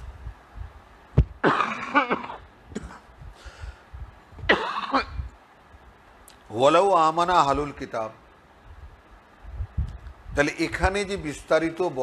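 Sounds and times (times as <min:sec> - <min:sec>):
man coughing and clearing throat: 0:01.4 - 0:03.2, 0:04.5 - 0:05.3.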